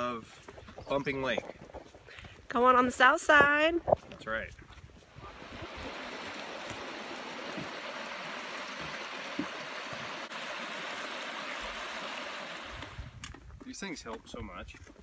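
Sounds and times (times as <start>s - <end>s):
creek water flowing: 3.8s - 13.2s.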